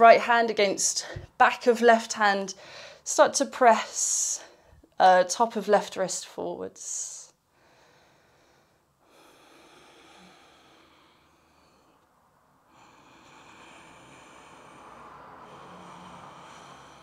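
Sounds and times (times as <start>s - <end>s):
soft slow breathing: 2.6s - 3.1s, 7.3s - 17.0s.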